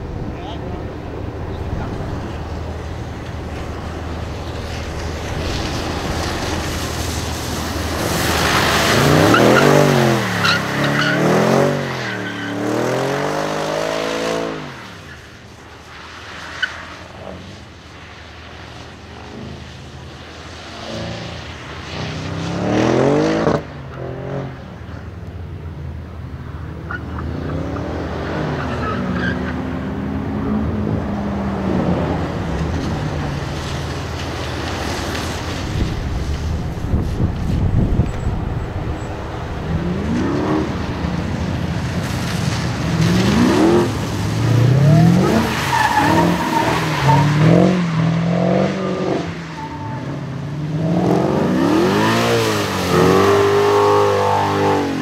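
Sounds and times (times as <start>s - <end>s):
car engine revving: 0.0s - 14.8s, 26.6s - 55.0s
tyres skidding on wet surface: 0.0s - 55.0s.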